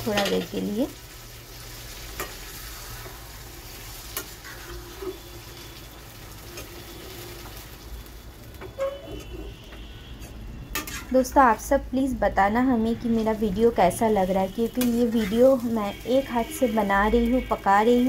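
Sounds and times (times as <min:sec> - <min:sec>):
food sizzling in a pan: 0:00.0 - 0:09.0, 0:13.0 - 0:18.0.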